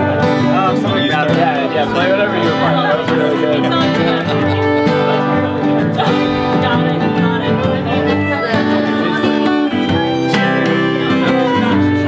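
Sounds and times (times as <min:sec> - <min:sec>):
acoustic guitar picked and strummed: 0:00.0 - 0:12.0
violin bowed: 0:00.0 - 0:12.0.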